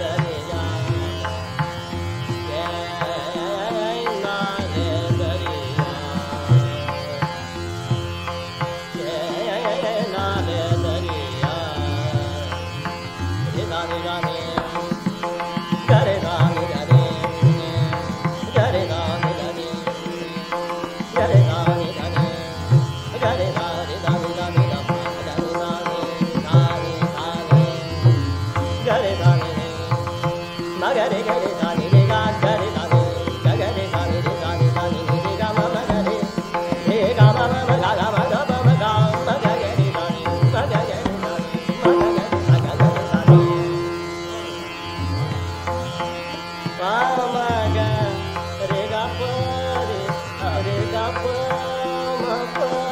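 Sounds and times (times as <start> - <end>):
man singing: 0.0 - 7.6, 8.5 - 44.6, 46.6 - 52.9
tanpura drone: 0.0 - 52.9
tabla strokes: 31.3 - 46.1.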